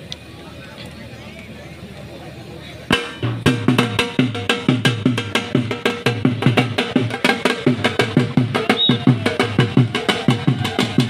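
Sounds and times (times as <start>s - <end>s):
drum beaten fast: 2.9s - 11.0s.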